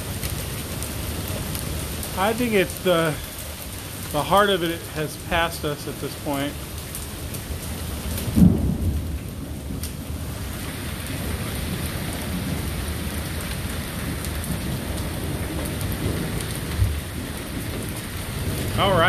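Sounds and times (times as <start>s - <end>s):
steady rain falling: 0.0s - 19.0s
low rolling thunder: 8.0s - 19.0s.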